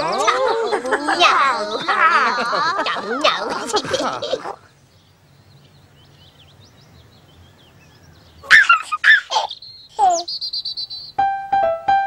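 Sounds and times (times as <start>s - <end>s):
faint birdsong chirping: 0.0s - 12.0s
baby giggling: 8.4s - 10.3s.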